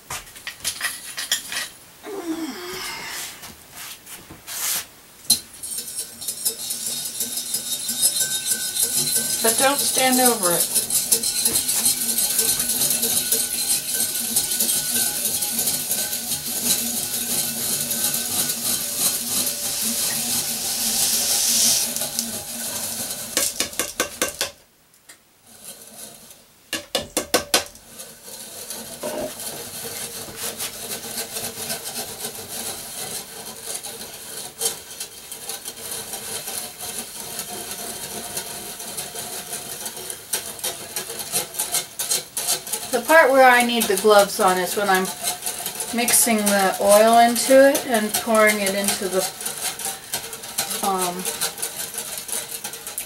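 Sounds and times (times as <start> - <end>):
metal whisk clinking against glass: 5.6 - 21.0.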